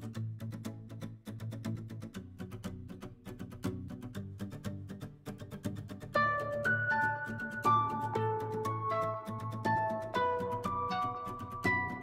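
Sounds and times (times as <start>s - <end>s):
background music with ticking beat: 6.3s - 12.0s.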